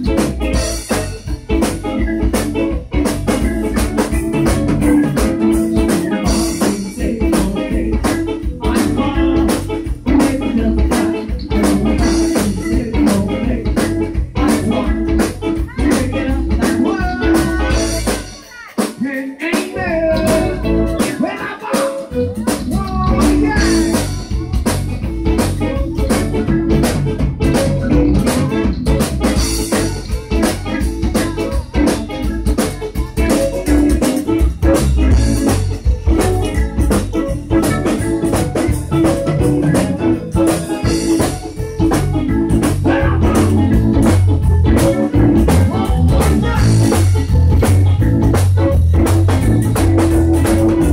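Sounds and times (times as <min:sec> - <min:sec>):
bass guitar: 0:00.0 - 0:50.9
drum kit beat: 0:00.0 - 0:50.9
electric guitar: 0:00.0 - 0:50.9
button accordion: 0:20.0 - 0:50.9.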